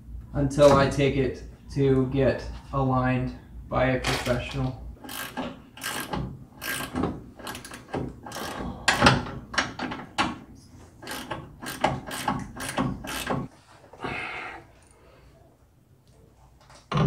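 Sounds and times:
ratchet wrench clicking: 5.0s - 9.0s, 11.0s - 13.5s.

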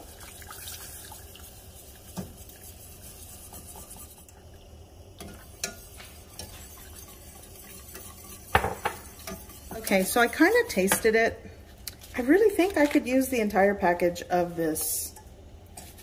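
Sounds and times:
whisk stirring in a pan: 0.0s - 4.4s, 5.2s - 11.2s, 15.7s - 16.0s
liquid pouring into a saucepan: 0.0s - 9.7s
whisk clinking against metal pan: 5.2s - 11.1s.

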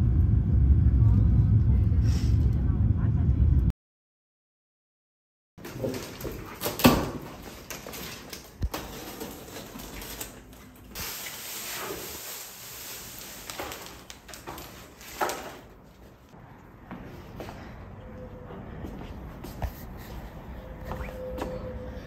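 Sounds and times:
plastic packaging rustling: 5.6s - 16.3s.

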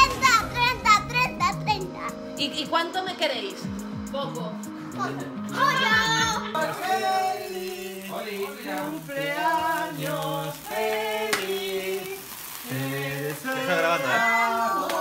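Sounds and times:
group of people singing together: 6.4s - 15.0s
sparkler candles fizzing: 6.5s - 15.0s.

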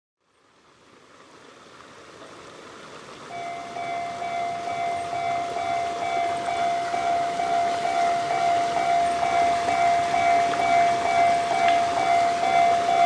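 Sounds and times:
faint outdoor hiss: 0.2s - 13.0s
level crossing warning bell dinging: 3.3s - 13.0s.

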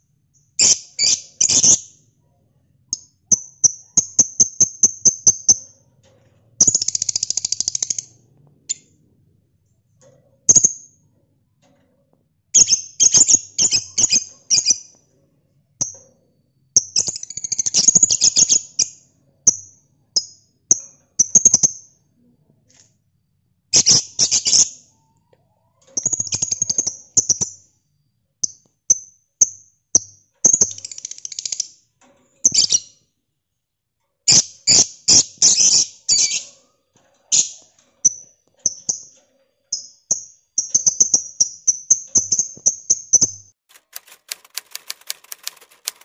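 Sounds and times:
fast even ticking: 43.7s - 46.0s.

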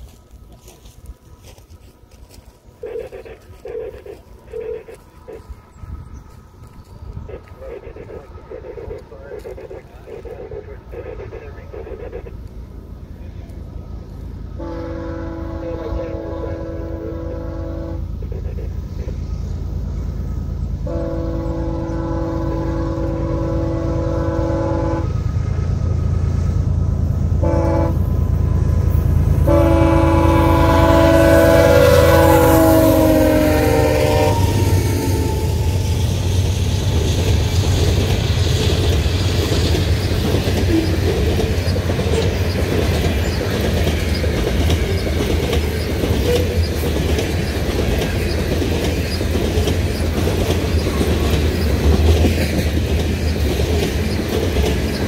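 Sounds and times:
diesel engines rumbling: 0.0s - 55.0s
locomotive air horn: 14.6s - 18.7s, 20.8s - 25.2s, 27.4s - 28.2s, 29.4s - 36.0s
train wheels clickety-clack: 34.3s - 55.0s.

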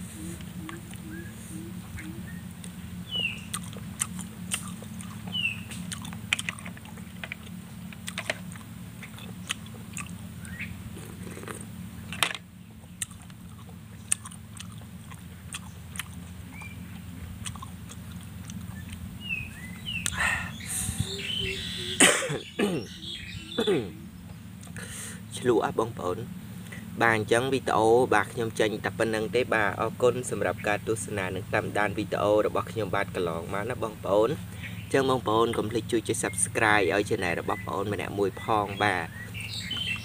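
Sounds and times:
steady low hum: 0.0s - 40.0s
chewing: 2.0s - 11.7s, 12.8s - 20.2s
sucking slurps and smacks: 3.5s - 10.2s, 10.9s - 11.7s.

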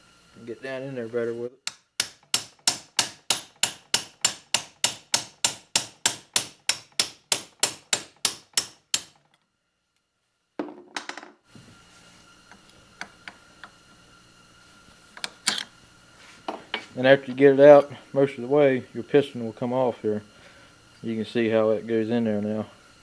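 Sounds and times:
hammer tapping steel punch: 1.6s - 9.2s.

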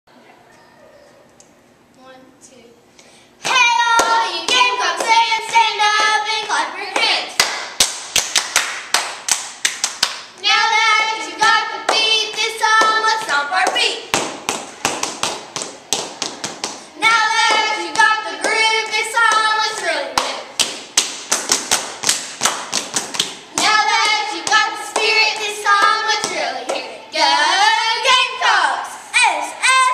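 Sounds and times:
girls chanting a cheer: 3.4s - 7.5s, 10.4s - 14.1s, 17.0s - 20.5s, 23.5s - 29.9s
hand claps and stomps: 7.0s - 10.4s, 11.9s - 18.6s, 19.3s - 26.9s.

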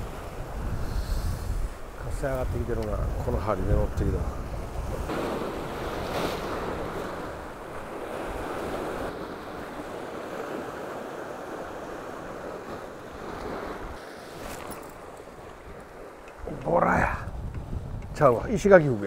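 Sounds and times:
surf breaking on rocky shore: 0.0s - 19.0s.

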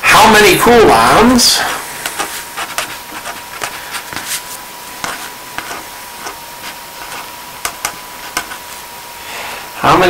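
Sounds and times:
pen scratching on paper: 1.7s - 8.8s.

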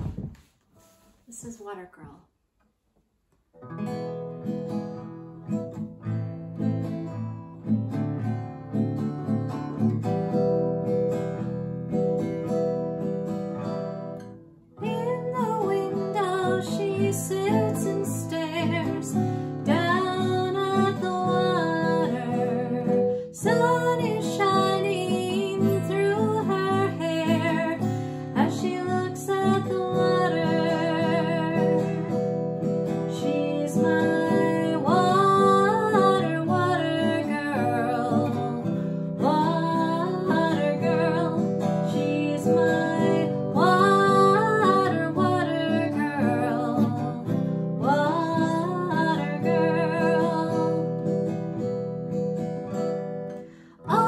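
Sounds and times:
acoustic guitar strumming: 3.6s - 54.0s
woman singing: 14.8s - 51.4s, 53.8s - 54.0s.

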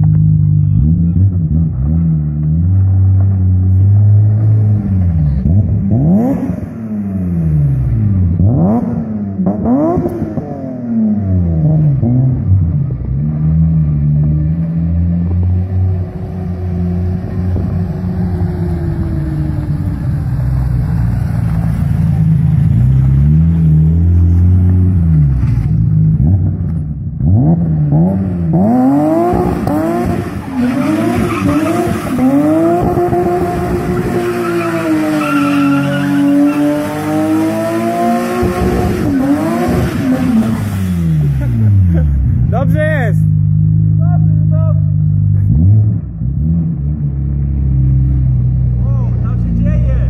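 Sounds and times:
car engine revving: 0.0s - 50.0s
tyres squealing: 34.4s - 36.7s.

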